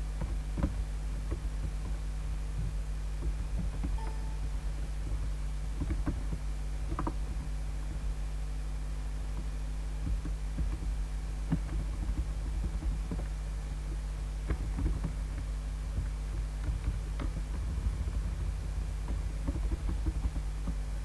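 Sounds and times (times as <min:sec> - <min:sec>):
low electrical hum: 0:00.0 - 0:21.0
computer mouse and keyboard clicks: 0:02.6 - 0:08.1, 0:10.0 - 0:13.4, 0:14.4 - 0:20.8.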